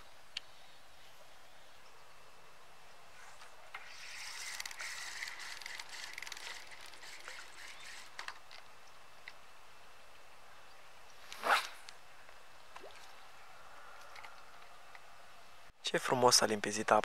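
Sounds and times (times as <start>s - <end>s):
fishing reel whirring and clicking: 3.8s - 8.6s.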